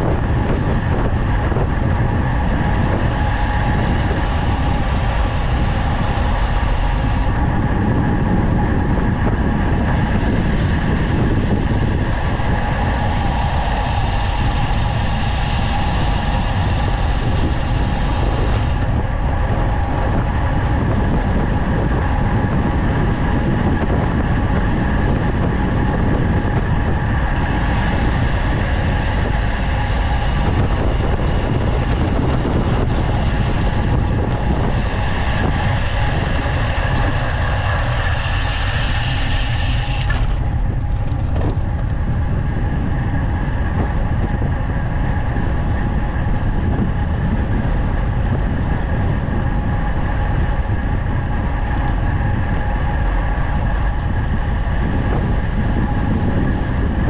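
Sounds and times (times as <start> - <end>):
bike tyre road noise: 0.0 - 57.0
wind rushing over microphone: 0.0 - 57.0
bright hiss: 2.5 - 7.4, 9.8 - 18.8, 27.4 - 40.4.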